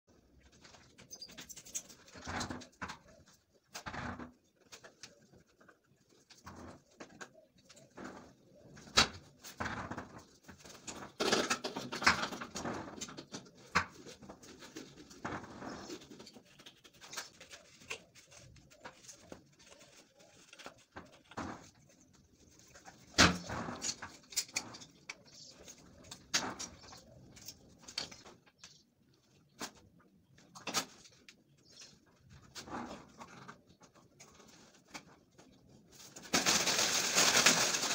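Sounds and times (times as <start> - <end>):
tools knocking and scraping: 6.3 - 28.8.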